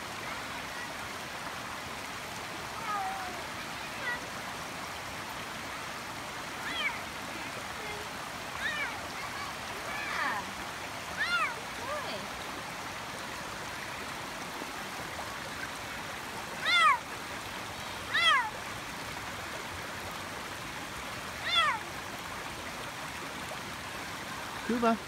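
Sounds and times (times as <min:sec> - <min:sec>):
creek water rushing: 0:00.0 - 0:25.0
cat meowing: 0:16.6 - 0:17.0, 0:18.1 - 0:18.5, 0:21.4 - 0:21.8.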